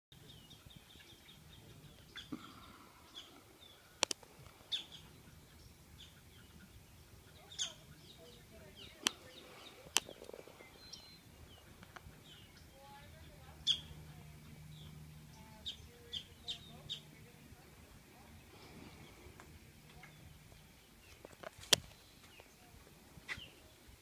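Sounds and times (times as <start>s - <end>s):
small birds chirping: 0.1s - 24.0s
sharp clicks: 4.0s - 4.3s.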